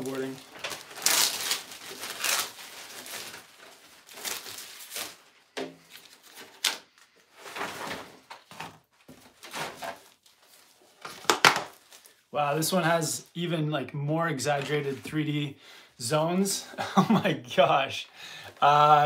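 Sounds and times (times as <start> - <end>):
cardboard rustling and scraping: 5.8 - 11.8.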